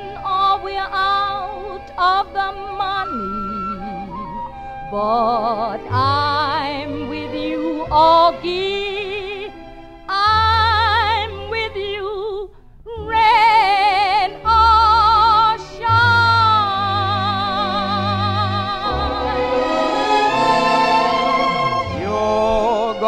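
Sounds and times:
woman singing with vibrato: 10.1 - 20.9
instrumental accompaniment: 13.1 - 23.0.

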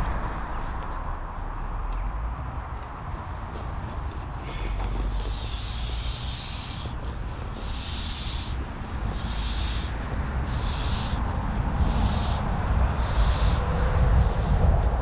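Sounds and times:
air hissing from valve: 5.3 - 6.9, 7.6 - 12.4, 13.0 - 14.7.

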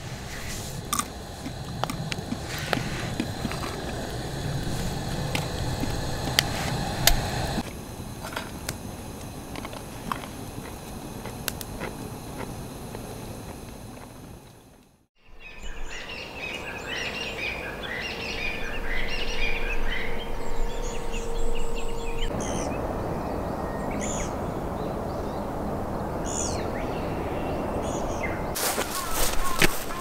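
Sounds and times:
background hiss: 0.0 - 30.0
songbirds chirping and singing: 15.3 - 30.0.

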